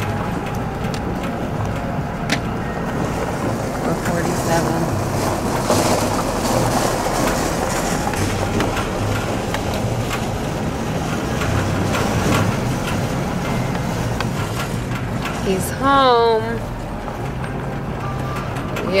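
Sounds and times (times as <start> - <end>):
rattles and clanks: 0.0 - 19.0
road rumble: 0.0 - 19.0
vehicle engine hum: 0.0 - 19.0.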